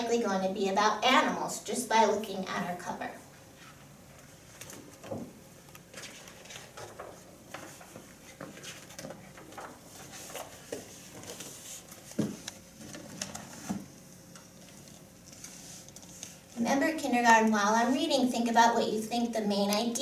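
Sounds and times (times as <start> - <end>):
book pages rustling and flapping: 3.6 - 13.9.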